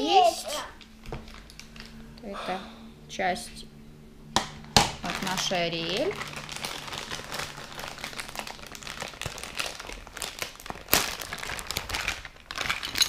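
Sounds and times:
plastic bag crinkling: 0.8 - 2.0, 4.6 - 13.0
plastic parts handled: 6.2 - 13.0.

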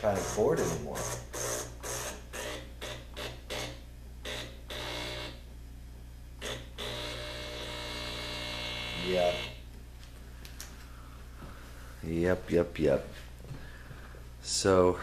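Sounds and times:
espresso machine pump running: 0.0 - 5.4, 6.4 - 9.6.

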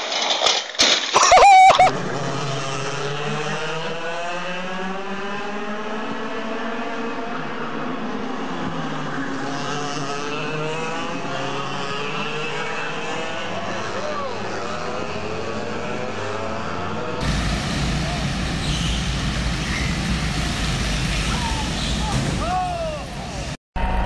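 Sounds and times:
racing kart engines: 0.1 - 24.0
high-pitched squeal: 17.2 - 24.0.

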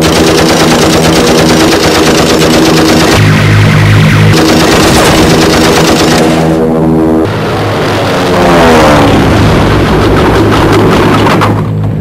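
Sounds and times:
machine-gun fire: 0.0 - 3.4, 4.3 - 6.6
aircraft engine running: 0.0 - 12.0
aircraft passing by: 0.0 - 12.0.

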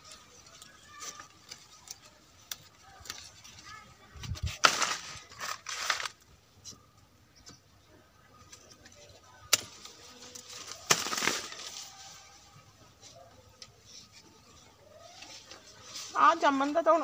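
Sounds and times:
pruning cutter cutting branches: 9.5 - 11.9.

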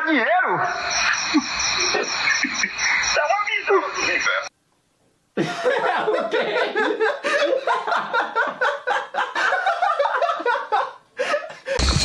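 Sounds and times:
men laughing: 0.8 - 3.2, 5.4 - 12.0.

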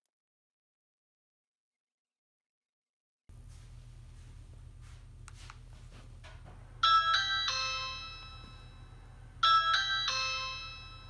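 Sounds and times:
three-note doorbell ding: 6.8 - 11.0.

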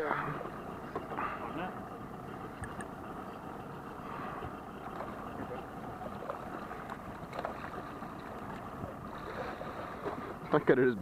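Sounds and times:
water noise: 0.0 - 11.0.

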